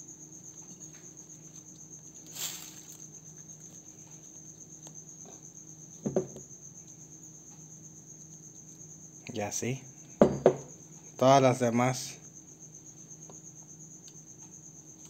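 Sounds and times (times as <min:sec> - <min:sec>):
crickets chirping: 0:00.0 - 0:15.0
short rustle: 0:02.2 - 0:03.1.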